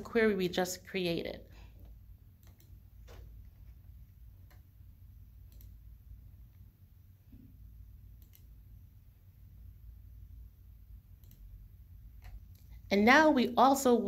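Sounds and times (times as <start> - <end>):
low steady hum: 0.0 - 14.0
computer mouse clicks: 2.4 - 3.8, 4.4 - 4.7, 5.4 - 5.9, 8.1 - 8.6, 11.2 - 11.6, 12.2 - 12.8.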